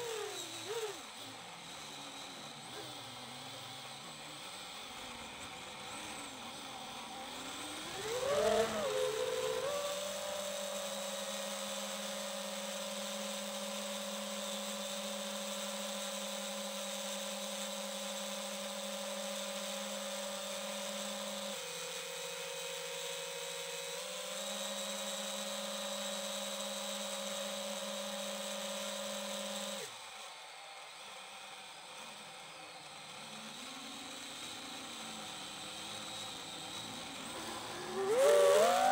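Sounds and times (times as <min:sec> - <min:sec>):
drone motors whining: 0:00.0 - 0:15.9, 0:23.9 - 0:38.9.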